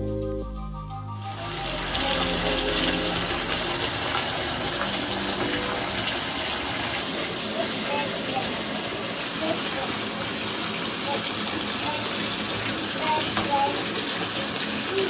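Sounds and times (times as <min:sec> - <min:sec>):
background music: 0:00.0 - 0:06.4
water gushing into a bathtub: 0:01.3 - 0:15.0.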